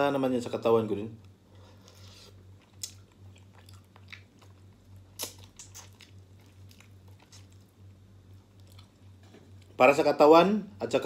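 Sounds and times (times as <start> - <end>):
faint low hum: 0.0 - 11.0
man chewing chicken: 1.6 - 9.7.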